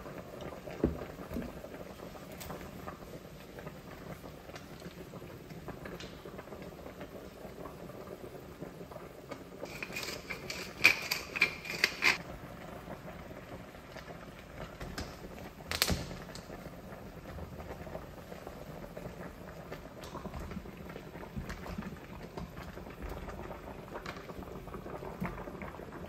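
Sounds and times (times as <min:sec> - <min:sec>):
pepper mill grinding: 0:09.7 - 0:12.2.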